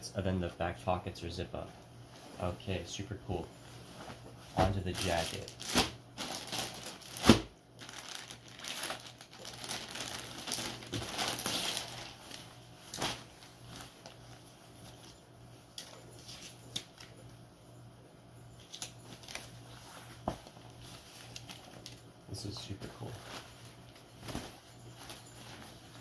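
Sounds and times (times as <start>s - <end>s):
plastic bag crinkling: 4.6s - 14.4s.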